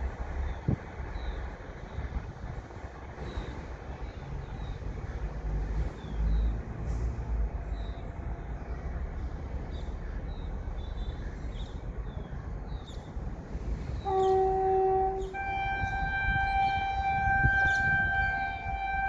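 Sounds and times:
train horn blast: 14.0 - 19.0.

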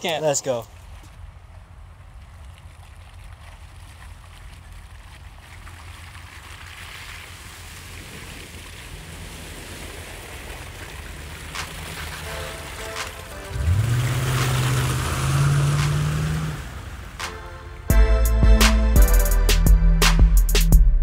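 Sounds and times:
wind rumbling on microphone: 1.2 - 12.0.

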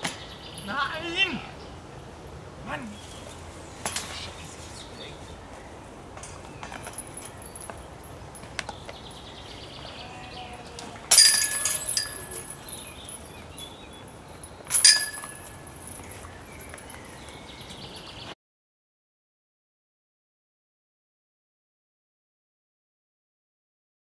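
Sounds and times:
metal chains jangling: 6.3 - 8.5, 11.1 - 17.1.

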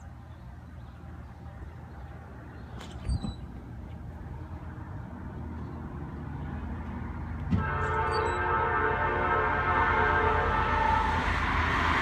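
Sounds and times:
vehicle engine rumble: 0.0 - 12.0
locomotive air horn: 7.6 - 12.0.

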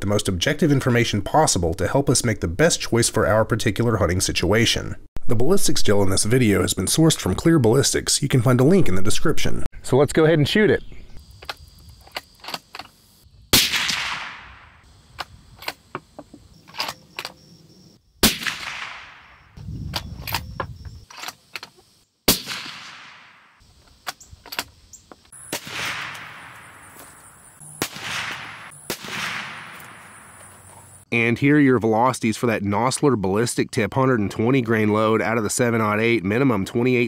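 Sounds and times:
suppressed rifle shots with echo: 13.6 - 14.8, 18.2 - 19.5, 22.3 - 23.6, 25.4 - 30.4.

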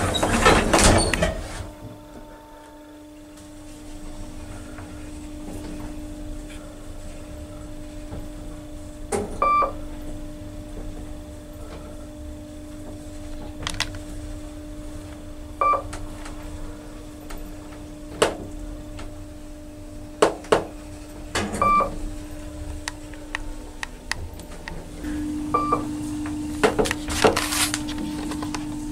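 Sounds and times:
elevator hum: 0.0 - 28.9.

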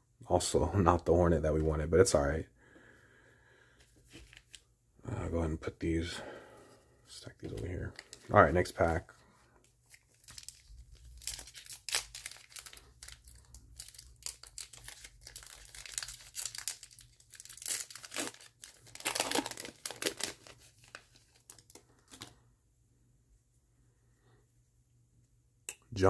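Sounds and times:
foil wrapper crinkling: 7.5 - 9.0, 9.8 - 22.3.

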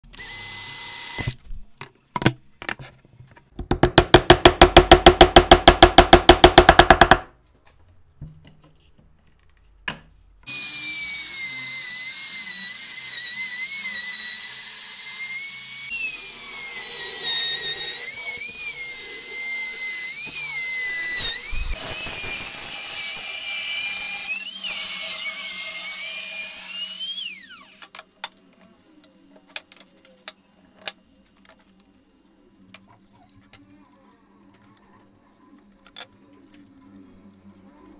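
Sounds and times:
cordless drill whining: 0.2 - 1.4, 10.5 - 27.9
trim router cutting wood: 10.5 - 27.8.

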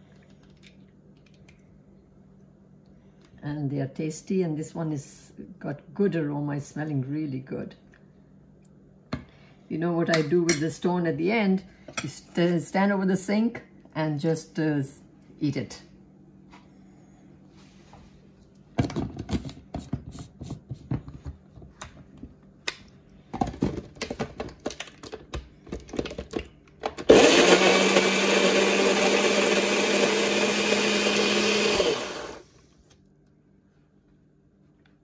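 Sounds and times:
blender whirring: 27.0 - 32.6.

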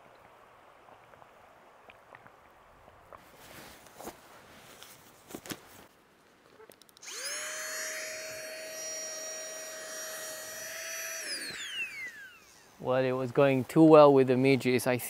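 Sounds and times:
faint clicks: 6.4 - 7.1
electric motor whirring: 7.0 - 12.8.

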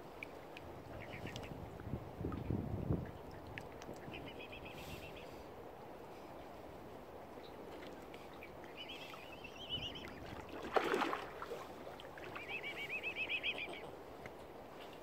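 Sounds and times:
low background hiss: 0.0 - 15.0
bird trilling: 12.4 - 13.9.

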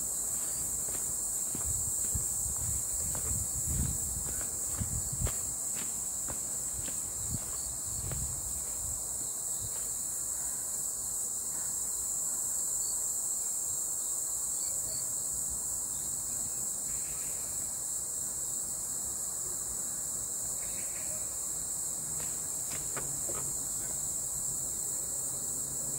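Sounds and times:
high-pitched insect chorus: 0.0 - 25.9
soft footfalls: 0.2 - 9.0, 22.1 - 24.1.

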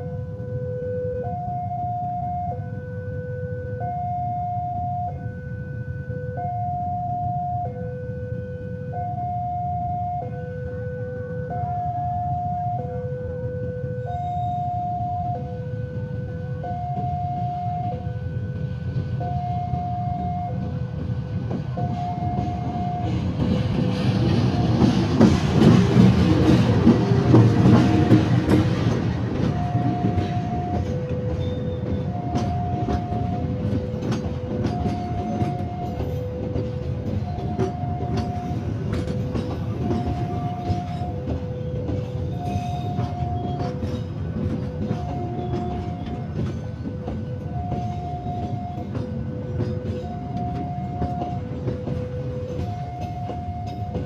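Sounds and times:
diesel locomotive passing: 0.0 - 54.0
level crossing alarm two tones: 0.6 - 20.8, 21.8 - 23.2, 29.4 - 38.7, 44.6 - 46.4, 47.0 - 54.0
train coaches rumbling: 4.6 - 54.0.

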